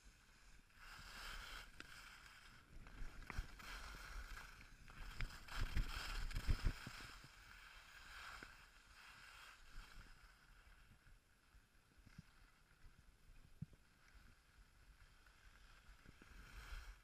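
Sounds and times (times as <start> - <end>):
skis scraping over snow: 0.1 - 10.8, 15.2 - 17.0.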